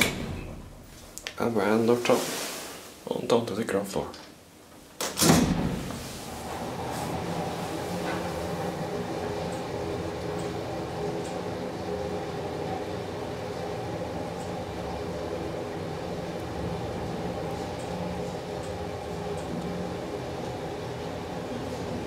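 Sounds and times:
elevator machinery humming: 0:05.2 - 0:22.0.

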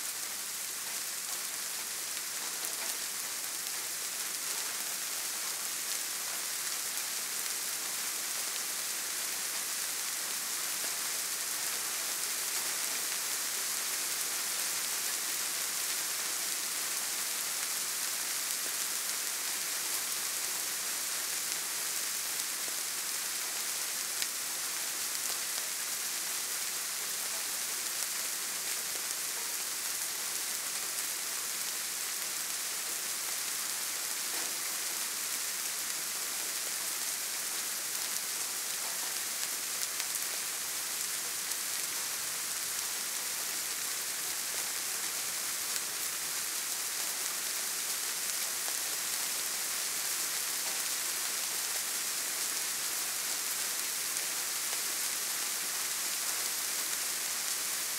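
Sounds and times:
soft rain falling: 0:00.0 - 0:57.9.

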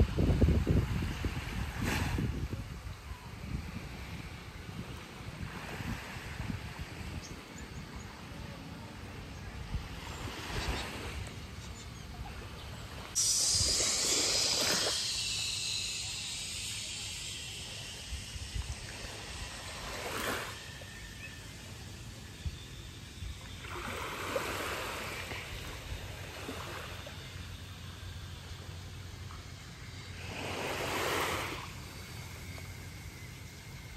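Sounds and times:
wind on microphone: 0:00.0 - 0:08.4, 0:09.0 - 0:21.3
small waves lapping on sand: 0:00.0 - 0:21.3, 0:23.4 - 0:33.7.

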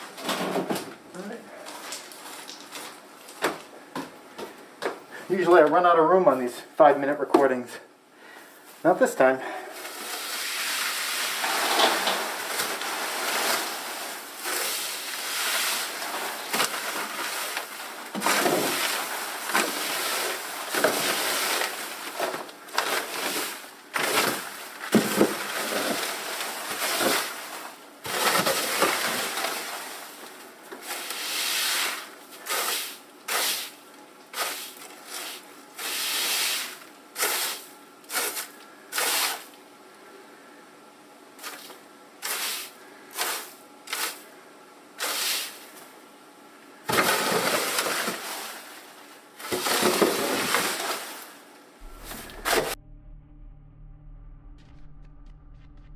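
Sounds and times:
hay scraped across coop floor: 0:09.8 - 0:16.5, 0:30.8 - 0:33.7, 0:34.3 - 0:39.5, 0:42.2 - 0:44.2, 0:45.0 - 0:45.6.

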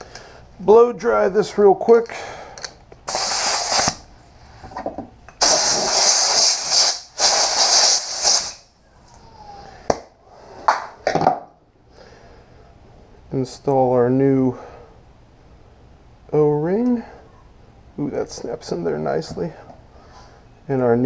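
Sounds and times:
compressed air blowgun hissing: 0:03.0 - 0:04.1, 0:05.4 - 0:08.7.

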